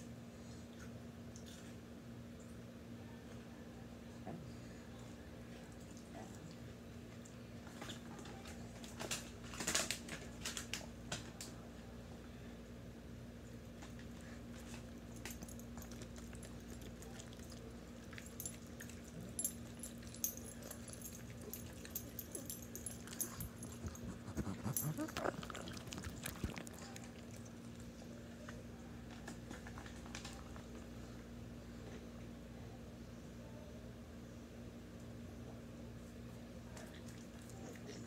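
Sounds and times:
dogs chewing and licking: 0:05.5 - 0:11.6, 0:13.6 - 0:30.9, 0:36.7 - 0:38.0
dog whining: 0:23.0 - 0:27.1.

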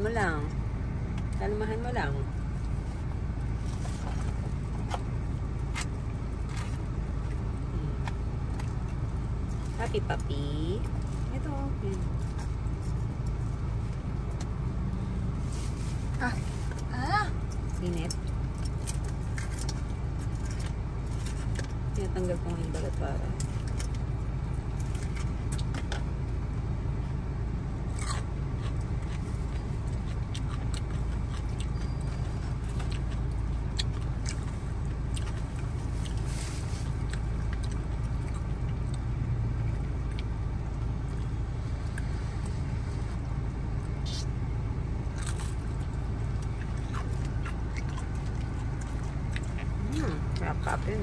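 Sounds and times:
car idling heard inside: 0:00.0 - 0:51.0
dog chewing food: 0:27.9 - 0:42.5, 0:45.0 - 0:51.0.

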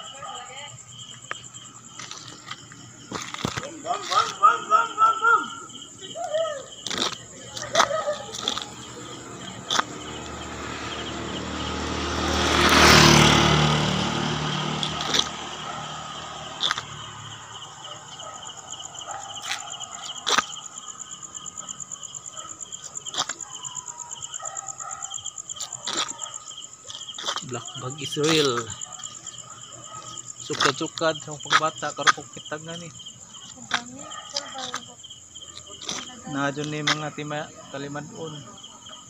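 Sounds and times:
night insects trilling: 0:00.0 - 0:39.0
vehicle passing on road: 0:06.9 - 0:39.0.

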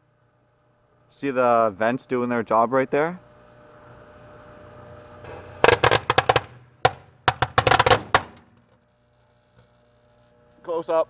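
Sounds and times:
microwave oven humming: 0:00.0 - 0:11.0
firecrackers cracking: 0:05.6 - 0:08.9.

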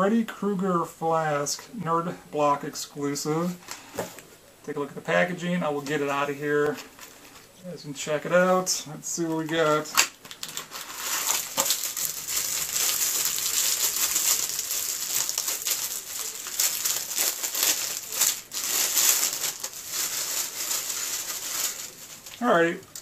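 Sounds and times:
packaging crinkling and rustling: 0:05.8 - 0:07.6, 0:09.2 - 0:23.0.

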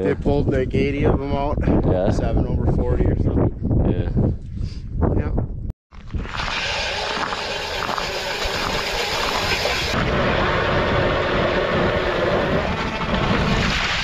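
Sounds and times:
ice auger grinding through ice: 0:06.0 - 0:14.0.

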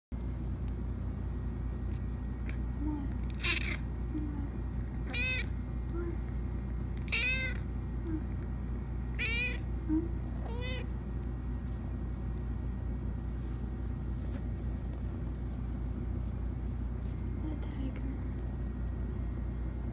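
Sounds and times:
steady low hum: 0:00.1 - 0:19.9
kitten meowing: 0:03.3 - 0:03.8, 0:05.1 - 0:05.5, 0:07.0 - 0:07.7, 0:09.2 - 0:09.7, 0:10.4 - 0:10.9.

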